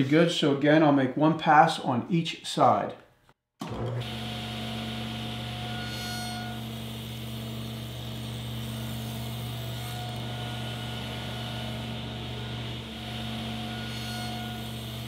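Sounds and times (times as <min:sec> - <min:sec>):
table saw running: 0:03.6 - 0:15.0.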